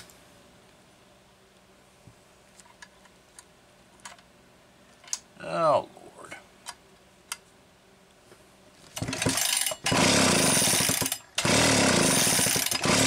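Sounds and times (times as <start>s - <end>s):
chainsaw pull starter cranking: 9.0s - 13.0s.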